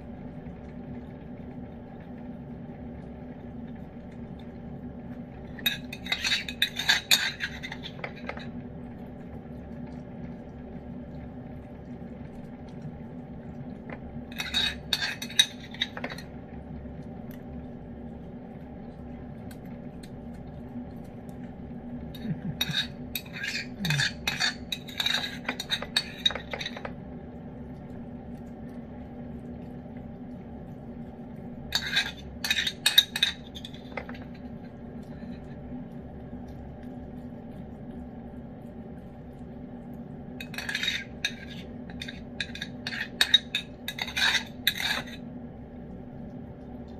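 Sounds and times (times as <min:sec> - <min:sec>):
steady low hum: 0:00.0 - 0:46.9
spoon scraping a bowl: 0:05.5 - 0:08.6, 0:14.3 - 0:16.3, 0:22.5 - 0:26.9, 0:31.7 - 0:34.3, 0:40.4 - 0:45.2.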